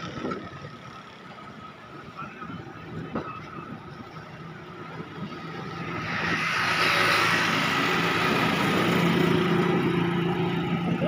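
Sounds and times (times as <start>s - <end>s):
street traffic: 0.0s - 11.0s
vehicle engine approaching: 0.0s - 11.0s.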